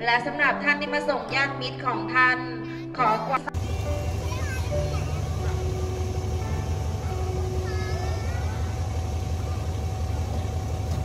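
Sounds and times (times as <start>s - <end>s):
train diesel engine idling: 3.6s - 11.0s.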